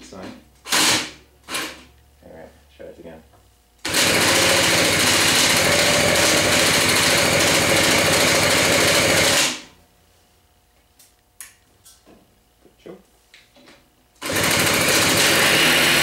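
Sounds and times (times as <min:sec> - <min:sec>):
moped engine fast-pulsing buzz: 0:14.2 - 0:16.0.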